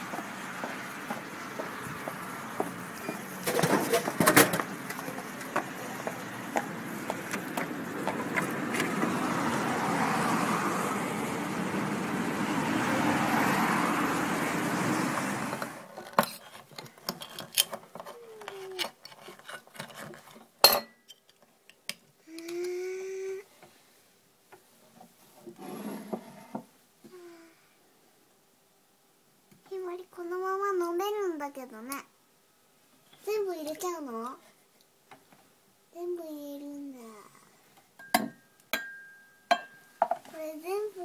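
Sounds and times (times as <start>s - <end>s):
can clattering into tray: 3.4s - 4.7s.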